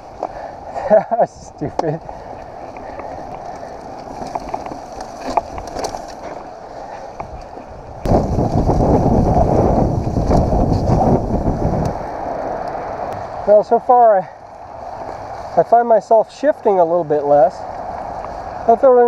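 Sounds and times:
bike clicks and rattles: 0:00.0 - 0:13.2, 0:17.3 - 0:18.8
rumbling wind noise on microphone: 0:00.0 - 0:13.8
bike tyres on dirt trail: 0:00.0 - 0:19.0.

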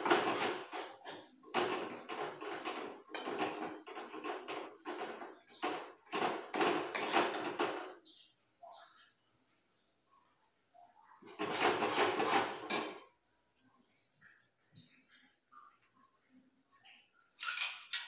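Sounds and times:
metal spatula scraping steel pan: 0:00.0 - 0:07.8, 0:11.2 - 0:13.1.

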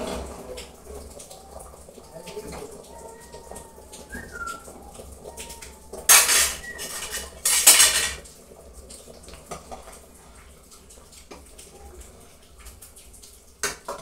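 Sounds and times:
metal ladle scraping a pot: 0:06.1 - 0:08.2.

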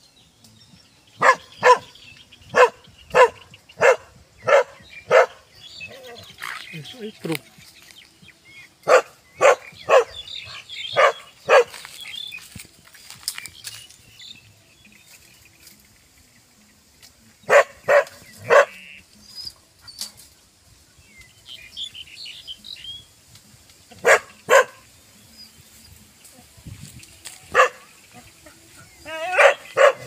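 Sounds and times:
dog barking: 0:01.2 - 0:05.5, 0:08.8 - 0:11.9, 0:17.5 - 0:18.8, 0:24.0 - 0:24.9, 0:27.5 - 0:27.9, 0:29.3 - 0:30.0.

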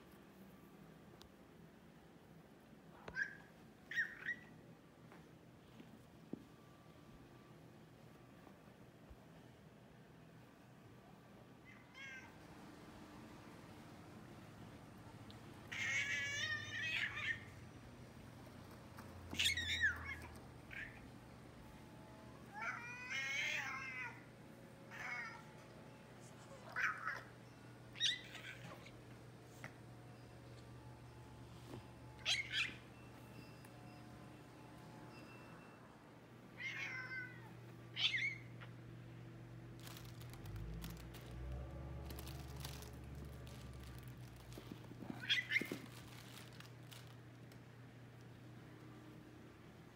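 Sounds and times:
cat squeaky calls: 0:03.0 - 0:04.5, 0:15.7 - 0:17.6, 0:19.3 - 0:21.1, 0:26.5 - 0:29.0, 0:32.0 - 0:34.0, 0:36.6 - 0:38.8, 0:45.0 - 0:46.6.

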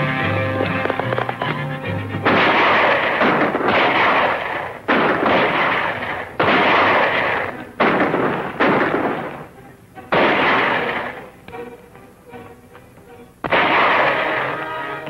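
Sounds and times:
echoing gunshots: 0:02.2 - 0:11.4, 0:13.4 - 0:15.0.

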